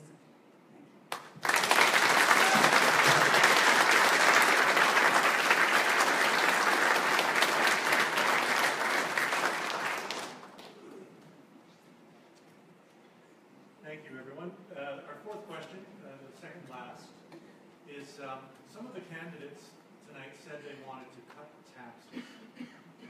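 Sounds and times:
audience applauding: 1.1s - 10.8s.

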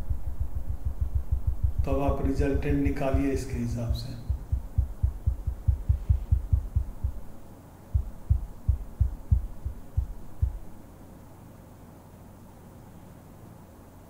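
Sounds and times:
dull low thumps: 0.0s - 3.4s, 4.2s - 10.8s.

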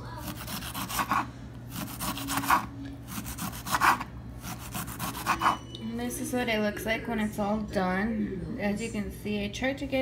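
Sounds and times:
knife sawing through cabbage: 0.2s - 5.6s.

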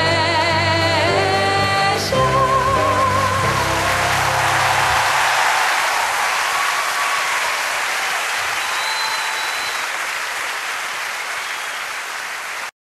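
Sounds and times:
audience applause: 3.2s - 12.7s.

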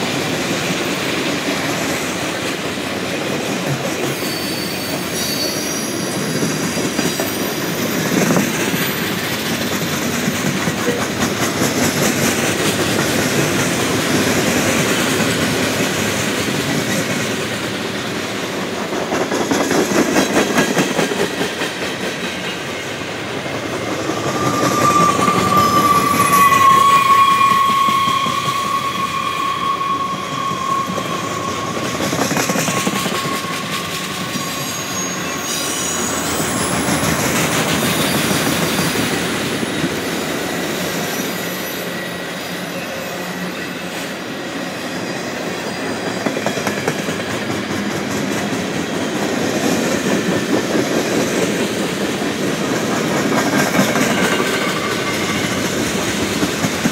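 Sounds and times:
high wheel squeal: 4.0s - 10.2s, 23.8s - 46.5s, 53.6s - 56.2s.

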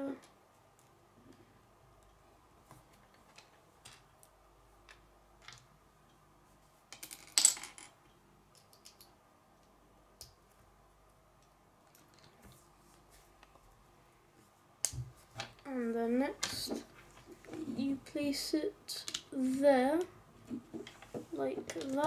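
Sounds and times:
plastic bricks clicking on table: 8.5s - 9.2s, 19.0s - 19.3s, 20.7s - 22.0s.

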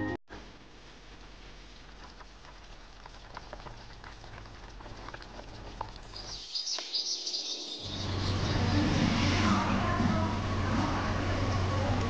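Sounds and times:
soup bubbling in a pot: 1.2s - 8.0s
birdsong chirps: 5.7s - 8.8s.

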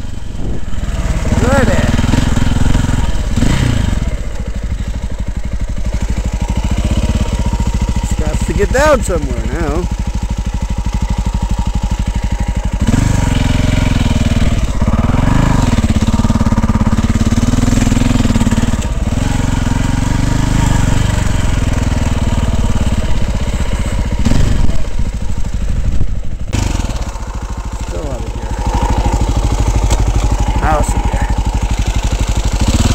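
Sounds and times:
dirt bike engine: 0.0s - 32.9s.

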